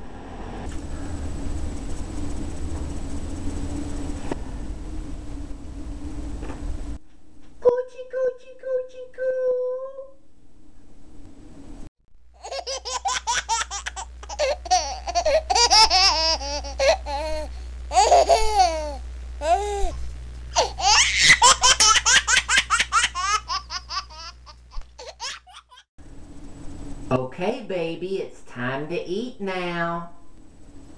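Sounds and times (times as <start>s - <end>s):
man giggling in high voice: 14.3s - 20.0s.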